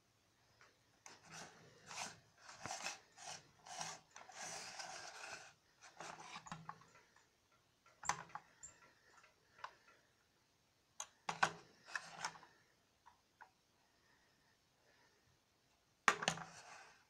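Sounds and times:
plastic toy scraping on wood: 1.1 - 6.6.

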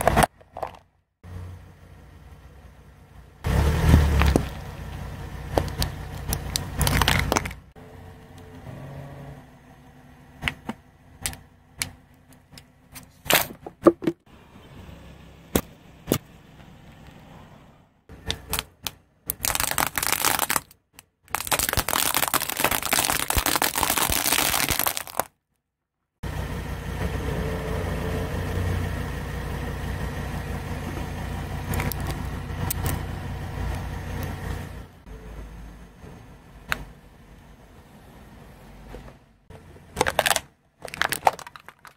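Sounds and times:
car rolling rumble: 0.0 - 25.3, 26.2 - 41.9
tyre crushing plastic: 5.6 - 7.6, 18.3 - 25.3, 40.0 - 41.9.

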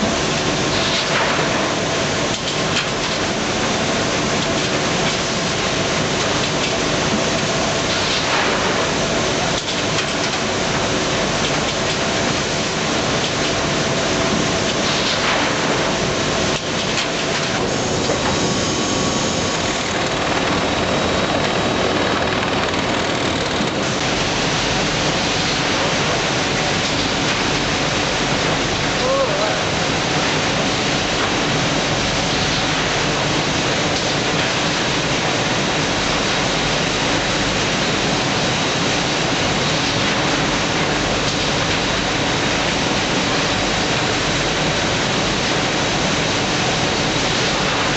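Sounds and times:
bagging machine running: 0.0 - 47.9.

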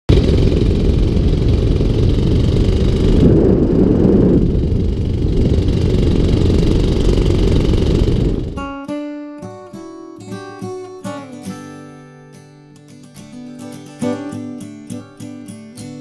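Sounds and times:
wind buffeting microphone: 0.1 - 8.7.

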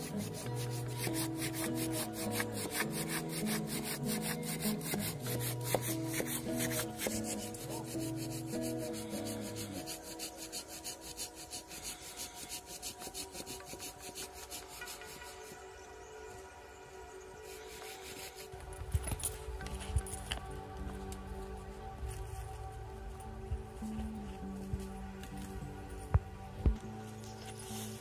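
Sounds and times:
hand saw rasping through log: 0.0 - 15.6, 17.6 - 18.5
background music: 0.0 - 28.0.

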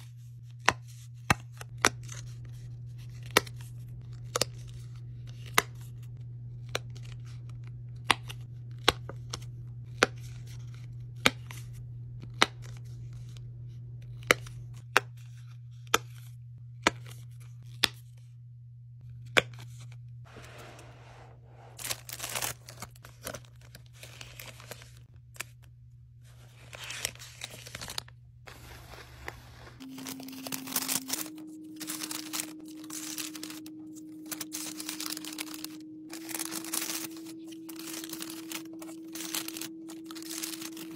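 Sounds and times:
paper rustling and crinkling: 20.3 - 25.6, 26.2 - 40.9.

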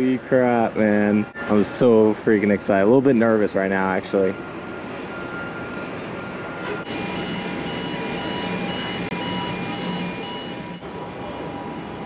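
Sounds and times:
heavy vehicles and machinery running: 0.0 - 12.0
reversing alarm beeping: 4.1 - 12.0.

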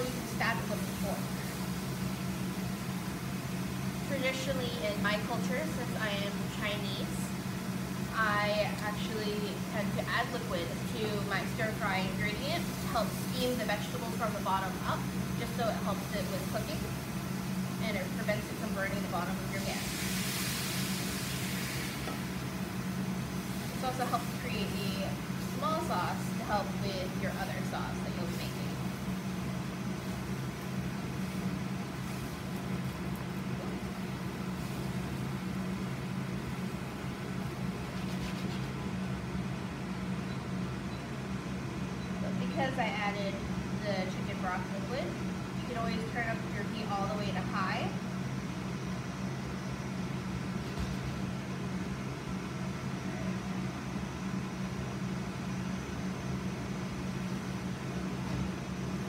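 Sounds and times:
vegetables sizzling in a skillet: 0.0 - 3.2, 11.2 - 17.0, 17.7 - 29.1
ventilation fan hum: 0.0 - 59.0
even hiss: 12.6 - 38.0.

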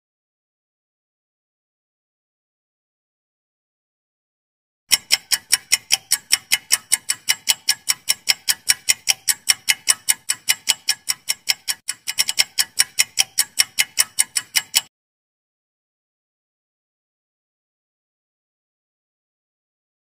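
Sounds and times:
clock-like timer ticking: 4.9 - 14.9.

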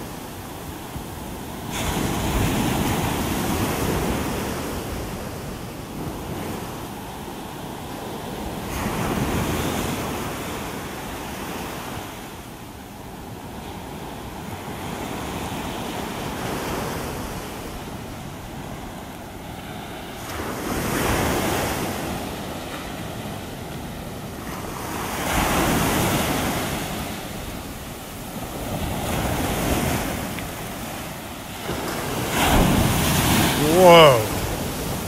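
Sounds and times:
surf breaking on beach: 0.0 - 6.8, 18.5 - 35.0.

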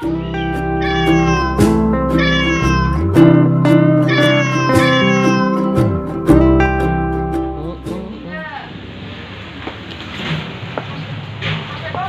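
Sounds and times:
music: 0.0 - 8.3
cat meows: 0.2 - 3.0, 3.9 - 5.8.

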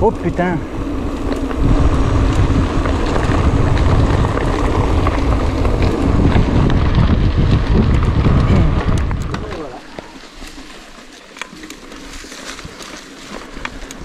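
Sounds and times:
wind buffeting microphone: 0.0 - 9.9
bike clicks and rattles: 0.0 - 14.0.

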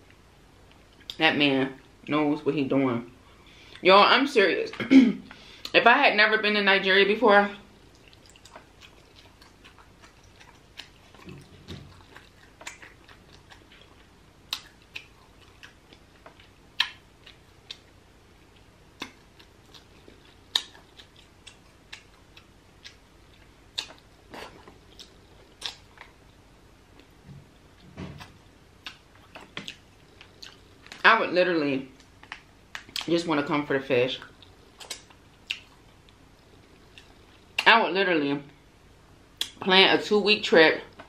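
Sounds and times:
chewing: 7.8 - 27.1, 27.7 - 31.0, 34.2 - 37.6.

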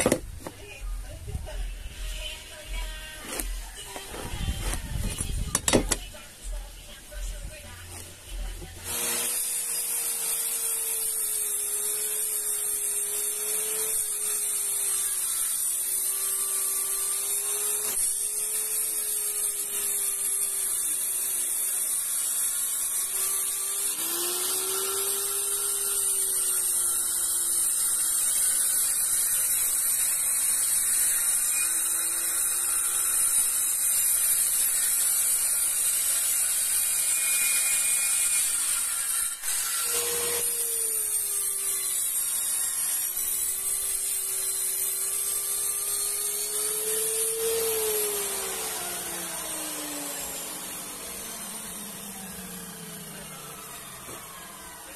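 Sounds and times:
circular saw cutting plywood: 0.0 - 54.9.

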